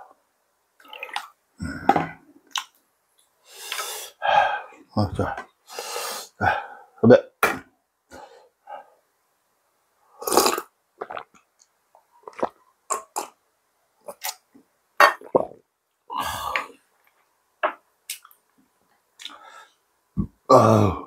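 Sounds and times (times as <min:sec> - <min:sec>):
person chewing with mouth smacks: 0:12.2 - 0:13.3.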